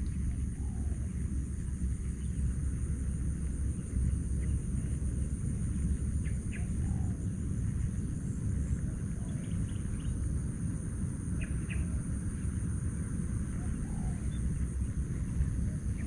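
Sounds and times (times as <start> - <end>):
low rumble: 0.0 - 16.0.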